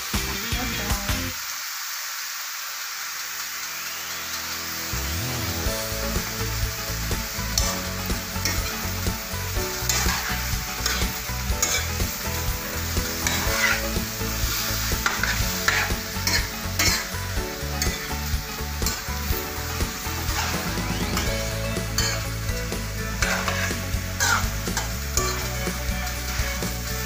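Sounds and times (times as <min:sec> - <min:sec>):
chicken sizzling in a wok: 0:00.0 - 0:27.0
metal spatula scraping a pan: 0:05.9 - 0:27.0.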